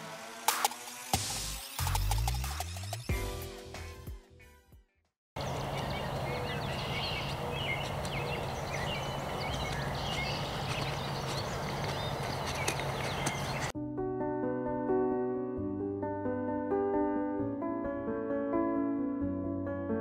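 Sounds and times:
birds chirping: 0:05.4 - 0:13.7
footsteps on dirt path: 0:05.4 - 0:13.7.

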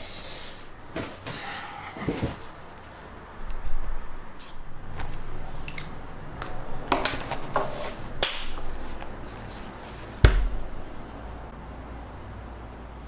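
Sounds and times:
sharp knock with low thud: 0:10.2 - 0:10.6.

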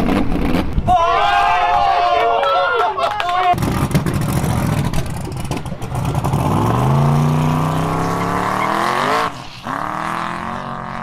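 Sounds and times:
drag car engine accelerating: 0:03.6 - 0:11.0.

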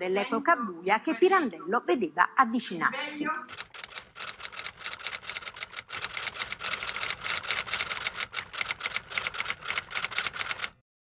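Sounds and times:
rapid mechanical clicking: 0:03.5 - 0:10.8.

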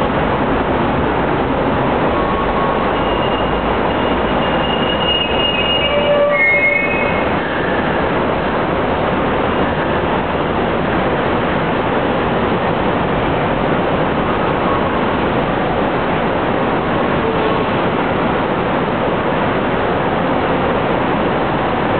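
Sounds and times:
light rail car rumbling: 0:00.0 - 0:21.9
high wheel squeals: 0:02.1 - 0:08.1.

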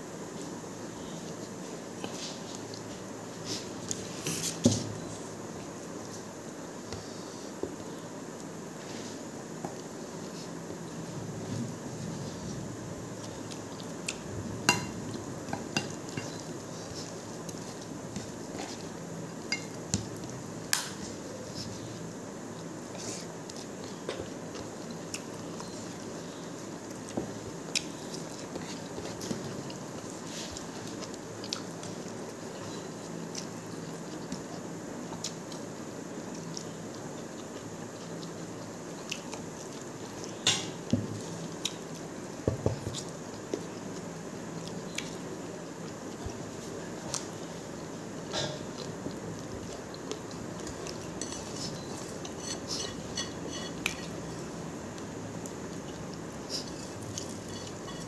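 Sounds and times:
steady background noise: 0:00.0 - 0:58.0
chewing and mouth smacks: 0:26.9 - 0:32.3, 0:36.3 - 0:40.4.

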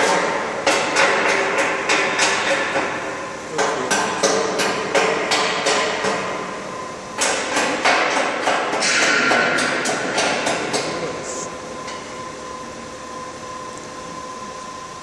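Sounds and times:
sharp knocks: 0:07.2 - 0:11.0.

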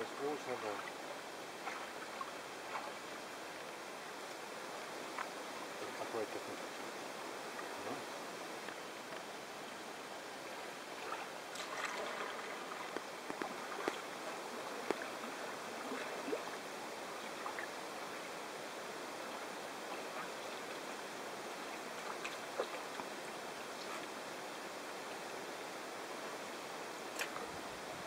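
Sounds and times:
paddle splashes and drips: 0:00.1 - 0:09.4, 0:10.3 - 0:18.4, 0:19.1 - 0:24.2, 0:27.1 - 0:27.6
water wash: 0:10.2 - 0:24.4
light ticks: 0:12.9 - 0:14.0.

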